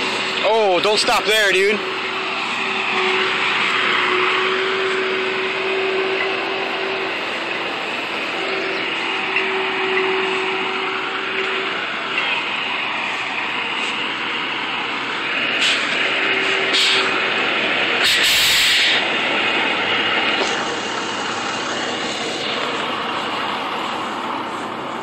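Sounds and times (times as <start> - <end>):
diesel engine under load: 0.0 - 25.0
wheels spinning in soft ground: 0.0 - 25.0
turbo whistle: 2.9 - 7.2, 18.0 - 19.0
loud hiss: 15.4 - 24.1.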